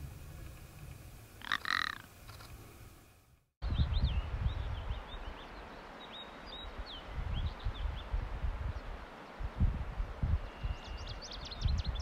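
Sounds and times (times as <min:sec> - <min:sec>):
low wind rumble: 0:00.0 - 0:12.0
ptarmigan croaking call: 0:01.4 - 0:02.1.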